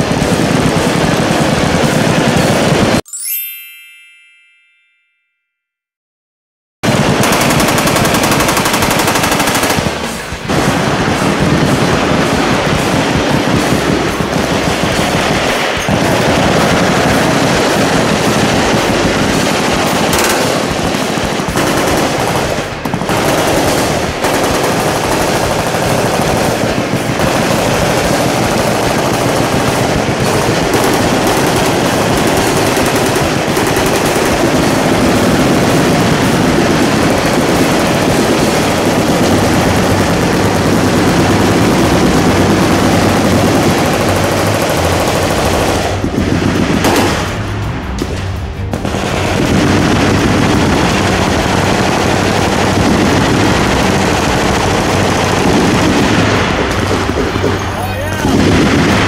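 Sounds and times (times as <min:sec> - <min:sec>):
machine-gun fire: 0:00.0 - 0:03.0, 0:06.8 - 0:59.0.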